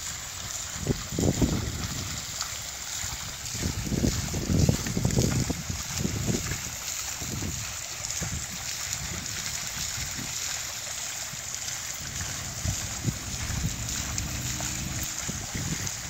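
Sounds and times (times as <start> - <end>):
fountain water splashing on pebbles: 0.0 - 16.0.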